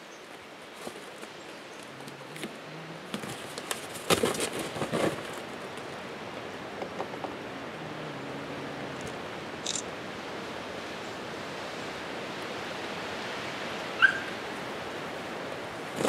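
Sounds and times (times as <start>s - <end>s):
carrier and box scraping: 2.2s - 5.6s.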